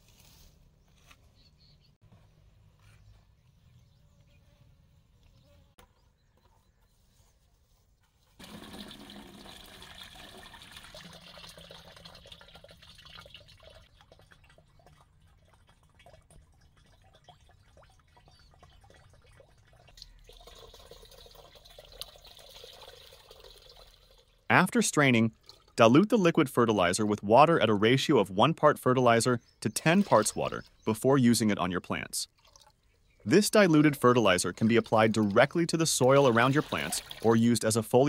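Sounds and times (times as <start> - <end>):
liquid sloshing and splashing: 8.4 - 24.4, 25.3 - 25.8, 29.8 - 30.7, 32.3 - 33.0, 34.6 - 37.4
liquid pouring into a bucket: 8.4 - 24.5, 25.2 - 25.9, 29.8 - 30.6, 32.3 - 32.8, 34.4 - 37.5.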